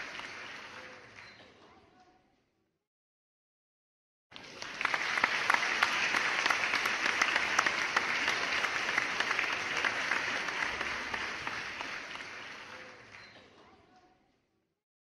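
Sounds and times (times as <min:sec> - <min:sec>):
audience applauding: 0:00.0 - 0:01.5, 0:04.3 - 0:13.5.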